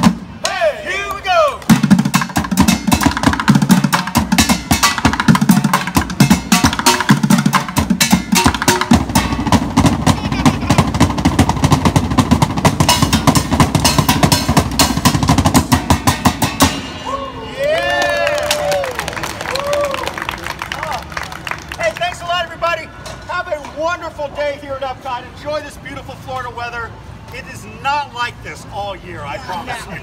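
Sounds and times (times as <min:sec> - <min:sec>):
drumming on steel pots and pans: 0:01.7 - 0:16.8.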